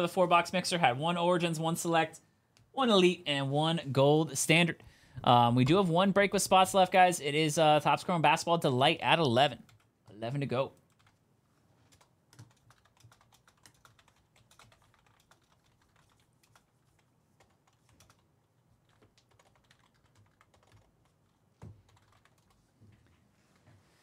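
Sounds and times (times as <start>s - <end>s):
typing on computer keyboard: 10.9s - 11.2s, 11.9s - 22.6s.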